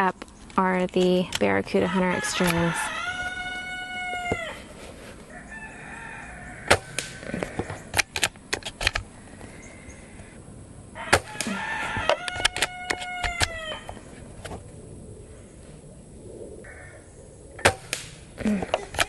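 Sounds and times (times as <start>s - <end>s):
air rifle shots: 6.7s - 7.3s, 17.6s - 18.3s.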